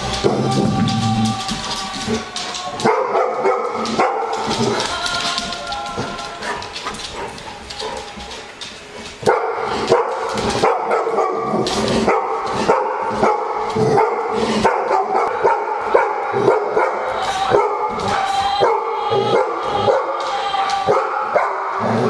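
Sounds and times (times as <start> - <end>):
dogs barking: 2.2 - 5.0, 9.1 - 22.0.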